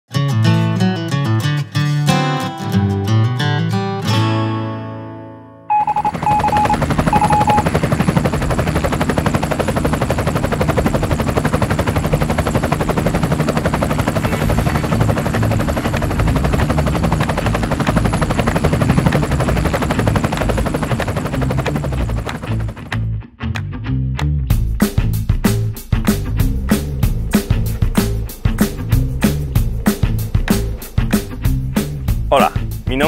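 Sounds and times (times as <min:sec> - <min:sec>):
short beeps: 0:05.7 - 0:07.7
helicopter engine: 0:05.7 - 0:23.0, 0:26.5 - 0:32.7
helicopter rotor chopping: 0:05.7 - 0:23.1, 0:26.0 - 0:33.0.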